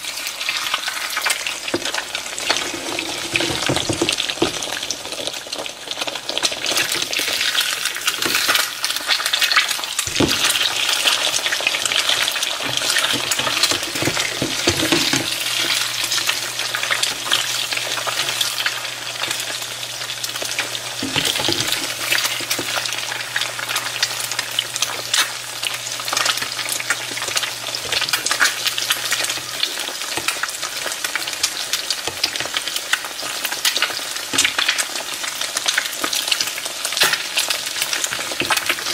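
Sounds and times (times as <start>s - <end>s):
eggs sizzling in hot fat: 0.0s - 38.9s
spatula scraping a skillet: 2.4s - 4.2s.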